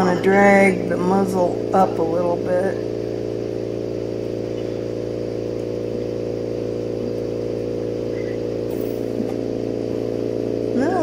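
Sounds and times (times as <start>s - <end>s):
motor humming: 0.0s - 11.0s.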